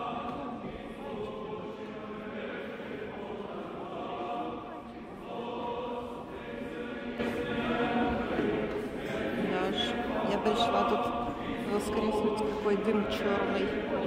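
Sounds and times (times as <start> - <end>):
choir chanting held notes: 0.0 - 14.0.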